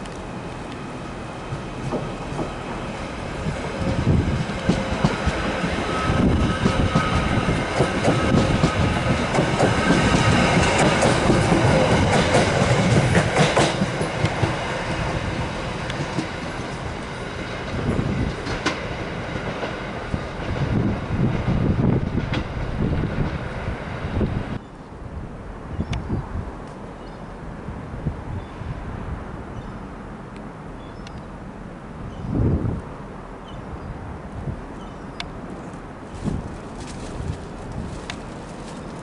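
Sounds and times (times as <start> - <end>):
train clunks over points: 1.5 - 2.6, 3.8 - 15.0, 17.6 - 19.8
train wheels clattering over rail joints: 1.5 - 2.6, 3.7 - 20.9.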